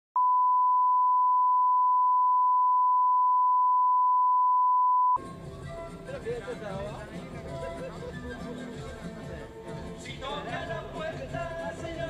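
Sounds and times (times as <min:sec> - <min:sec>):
music with voice: 0:05.2 - 0:12.0.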